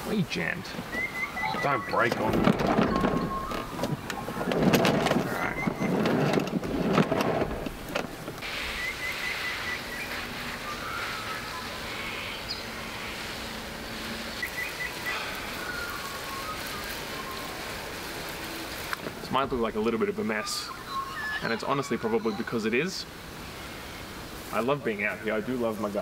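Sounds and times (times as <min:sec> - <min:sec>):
steady outdoor hiss: 0:00.0 - 0:26.0
bird chirping: 0:00.7 - 0:06.5, 0:08.6 - 0:13.4, 0:14.3 - 0:17.8, 0:19.9 - 0:22.7
hose reel rattling: 0:02.0 - 0:08.4.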